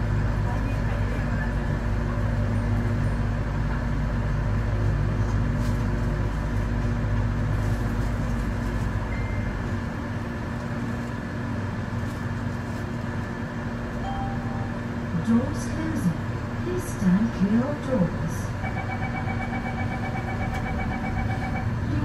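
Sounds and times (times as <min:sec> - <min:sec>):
train hum with steady tones: 0:00.0 - 0:22.0
train low rumble: 0:00.0 - 0:22.0.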